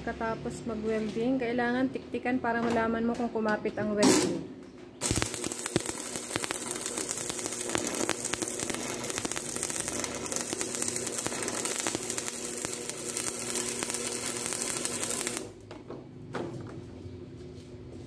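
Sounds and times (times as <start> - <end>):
steady hum: 5.0 - 15.6
welding arc crackling: 5.0 - 15.6.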